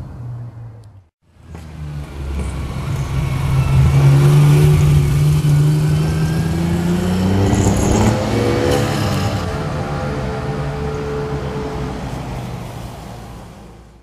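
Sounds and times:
car engine accelerating past: 0:01.8 - 0:12.6.

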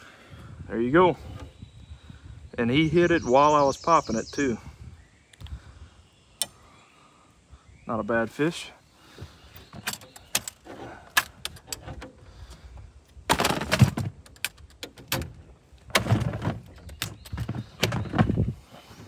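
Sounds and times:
cooler latches and lid clicking: 0:13.3 - 0:18.4
clattering thumps: 0:13.3 - 0:18.6.

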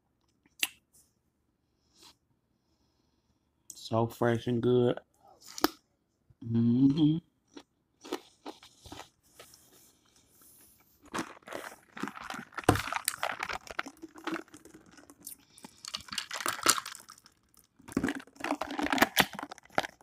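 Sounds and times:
crunchy chewing of cucumber: 0:07.5 - 0:09.2, 0:11.0 - 0:20.0.

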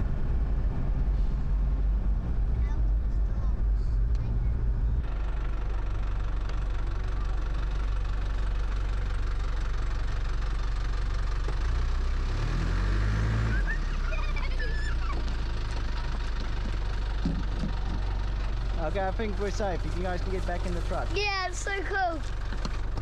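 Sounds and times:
truck engine labouring and revving: 0:00.0 - 0:23.0.

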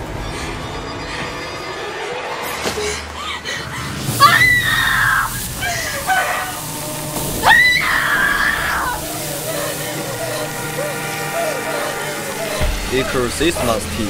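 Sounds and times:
high-pitched screaming: 0:04.1 - 0:14.0.

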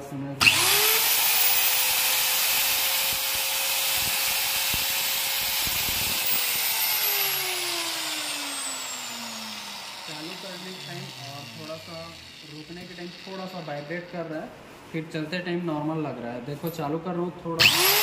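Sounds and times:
motor winding down: 0:00.4 - 0:14.1, 0:17.6 - 0:18.0
marble cutter high whine: 0:00.4 - 0:14.3, 0:17.6 - 0:18.0.

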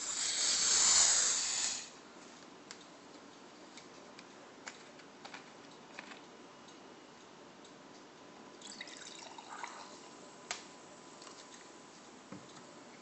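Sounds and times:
gas hissing out of plastic bottle: 0:00.0 - 0:02.0.

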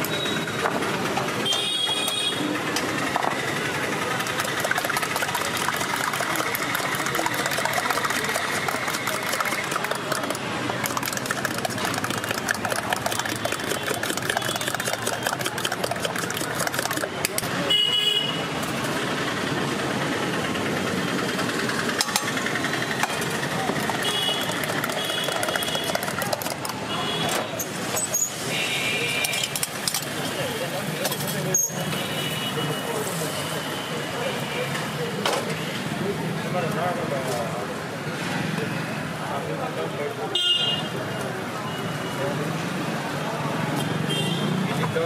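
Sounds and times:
vehicle engines running: 0:00.0 - 0:17.7, 0:18.4 - 0:28.5
whisk clicking against metal cup: 0:04.1 - 0:17.5, 0:23.0 - 0:26.8.

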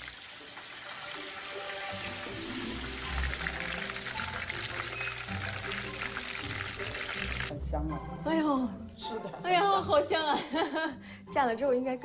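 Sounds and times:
crabs sizzling in hot oil: 0:00.0 - 0:07.5
soft background music: 0:00.0 - 0:12.0.

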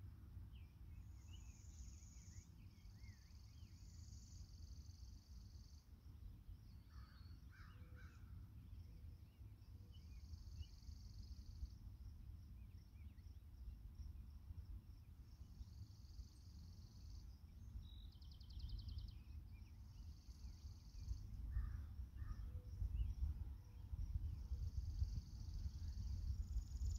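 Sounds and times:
wind rumble on microphone: 0:21.0 - 0:26.9.

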